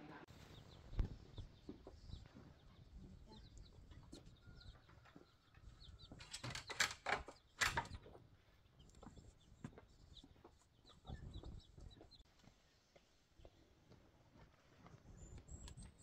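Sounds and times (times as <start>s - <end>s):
small birds chirping: 0.1s - 16.0s
chickens clucking: 0.4s - 12.2s.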